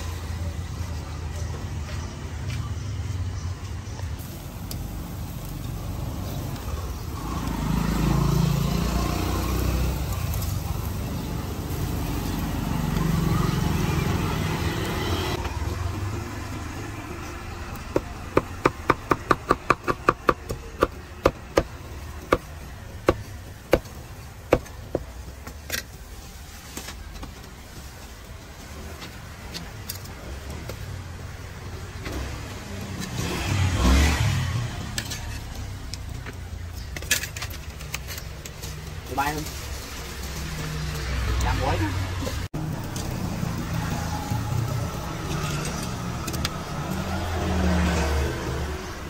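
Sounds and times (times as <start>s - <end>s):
vehicles passing: 0.0s - 49.0s.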